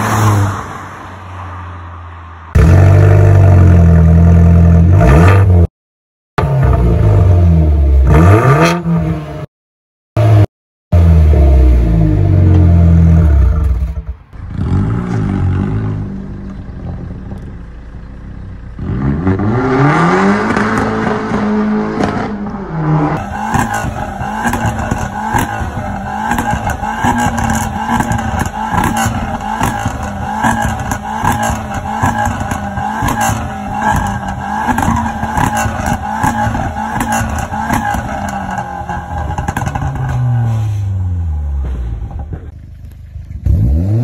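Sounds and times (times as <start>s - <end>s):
car engine revving: 18.8s - 42.4s, 43.2s - 44.0s
exhaust pops and bangs: 41.6s - 42.6s.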